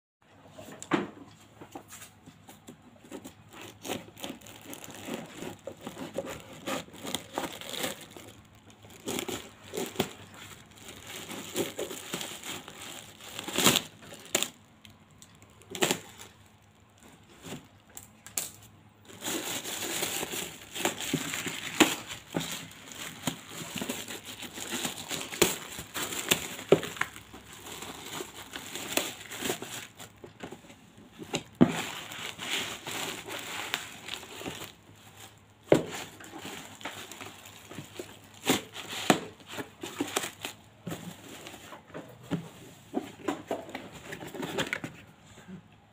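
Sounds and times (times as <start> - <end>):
plastic wrapping crinkling: 3.0 - 42.0.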